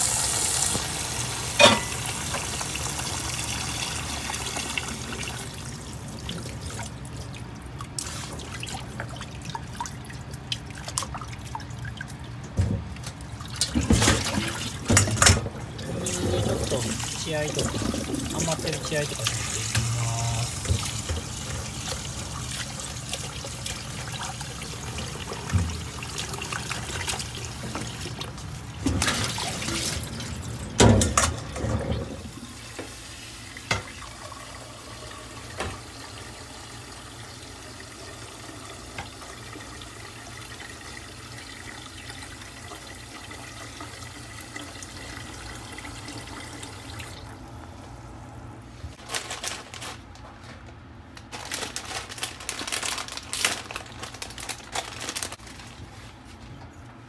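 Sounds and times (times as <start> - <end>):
water filling metal pot: 0.0 - 5.6, 13.6 - 28.3
tap water running into sink: 0.0 - 11.3, 12.4 - 47.4.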